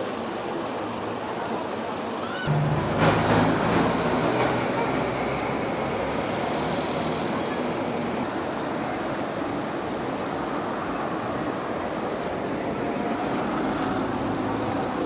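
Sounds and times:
steady traffic hum: 0:00.0 - 0:15.0
vehicle engine passing close: 0:02.5 - 0:08.3.

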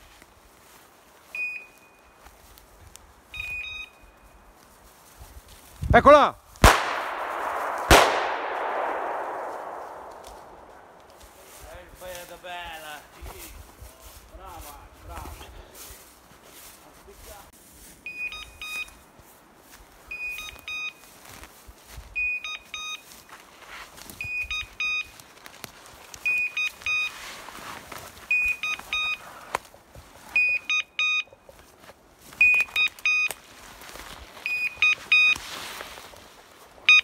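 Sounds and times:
beeper collar alarm tones: 0:01.3 - 0:02.2, 0:03.3 - 0:04.4, 0:18.0 - 0:19.0, 0:20.1 - 0:21.0, 0:22.2 - 0:23.3, 0:24.2 - 0:25.2, 0:26.2 - 0:27.2, 0:28.3 - 0:29.3, 0:30.3 - 0:31.5, 0:32.4 - 0:33.3, 0:34.4 - 0:35.4.

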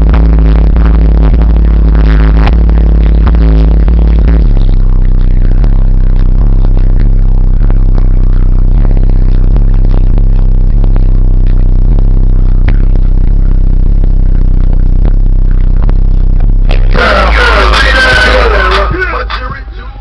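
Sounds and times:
bright rush over deep rumble: 0:00.0 - 0:20.0
distorted deep bass music: 0:00.0 - 0:20.0.

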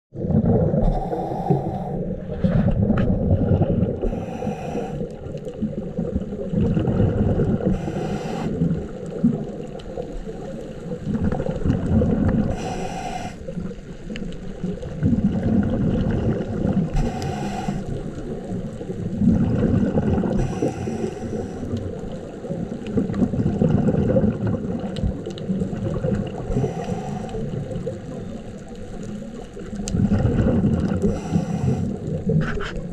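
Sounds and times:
exhaled air bubbling: 0:00.1 - 0:32.9
low underwater noise: 0:00.1 - 0:32.9
scuba regulator inhale hiss: 0:00.8 - 0:02.7, 0:04.0 - 0:05.2, 0:07.6 - 0:08.8, 0:12.5 - 0:13.5, 0:16.9 - 0:18.2, 0:20.4 - 0:21.8, 0:26.5 - 0:27.8, 0:31.0 - 0:32.8.

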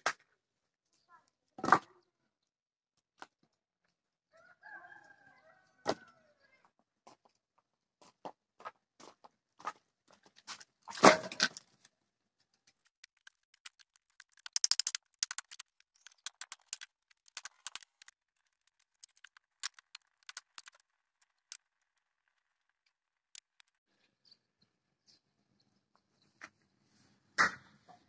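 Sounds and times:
firewood dropped on dirt ground: 0:10.9 - 0:11.8
kindling crackling: 0:12.7 - 0:23.8.

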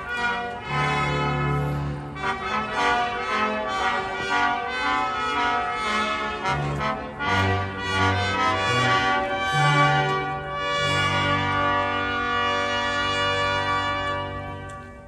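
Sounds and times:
brass band playing slow chords: 0:00.0 - 0:15.0.

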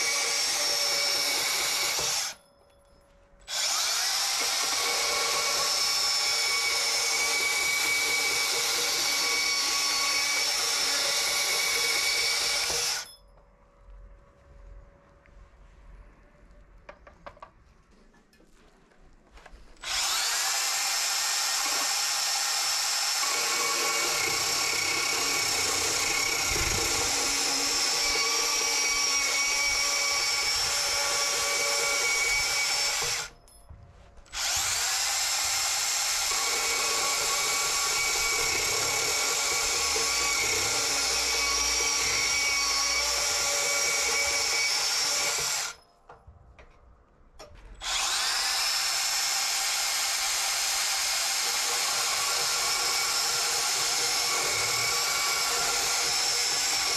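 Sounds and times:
band saw cutting steel: 0:00.0 - 0:02.4, 0:19.8 - 0:33.4, 0:34.3 - 0:45.8, 0:47.8 - 0:56.9.

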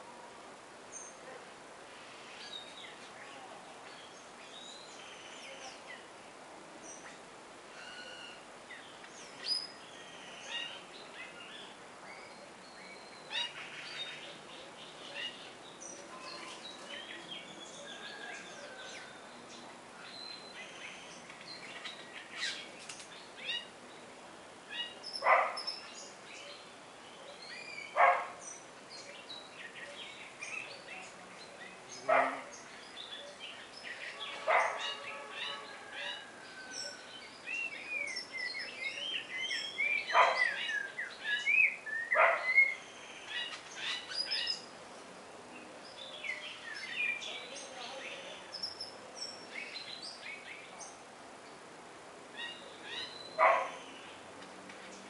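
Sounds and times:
birds chirping and whistling: 0:32.9 - 0:44.7
loud harsh bird calls: 0:34.0 - 0:37.0.

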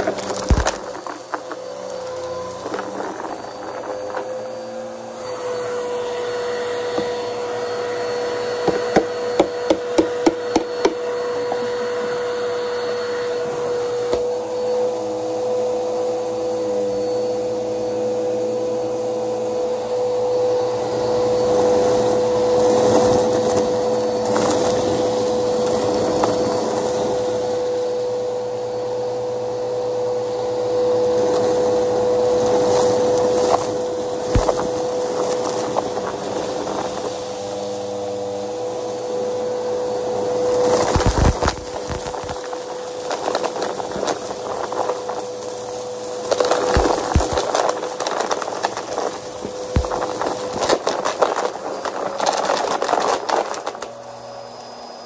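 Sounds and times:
loud crackling: 0:00.0 - 0:05.0, 0:32.3 - 0:37.0, 0:40.5 - 0:54.0
vacuum cleaner whining: 0:00.0 - 0:55.0.

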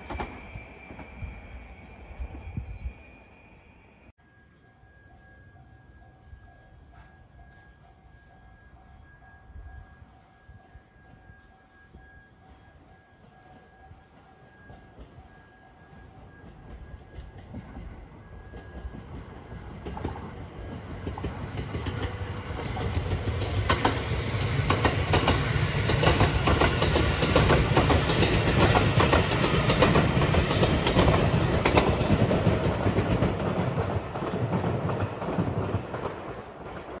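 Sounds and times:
electric train passing: 0:00.0 - 0:37.0
wheels clacking over rail joints: 0:16.5 - 0:37.0.

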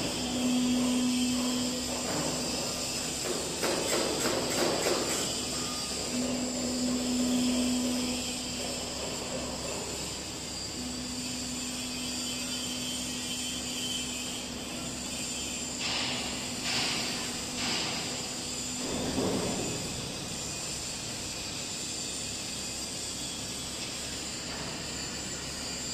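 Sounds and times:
plate rolling machine hum: 0:00.0 - 0:03.6, 0:05.0 - 0:11.7.

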